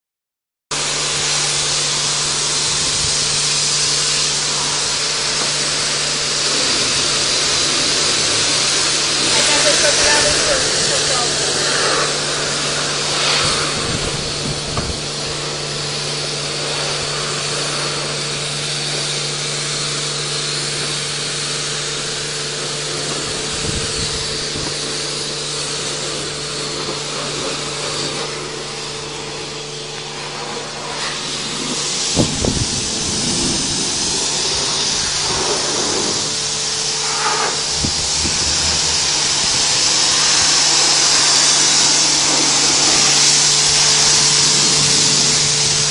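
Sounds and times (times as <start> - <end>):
pump humming: 0.7 - 45.9
pressure washer spraying water: 0.8 - 45.9.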